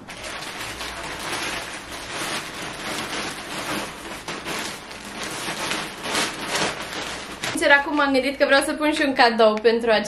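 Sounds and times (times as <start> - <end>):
plastic bag crinkling: 0.0 - 8.4.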